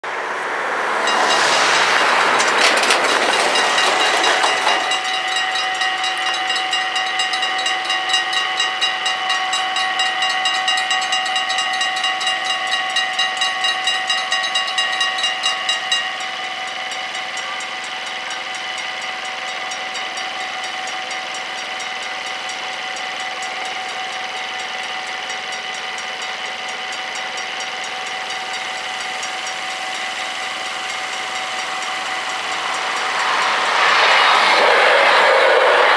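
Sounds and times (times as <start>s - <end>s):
loud rushing noise: 0.0s - 6.4s, 29.7s - 35.9s
level crossing warning bells: 0.8s - 34.6s.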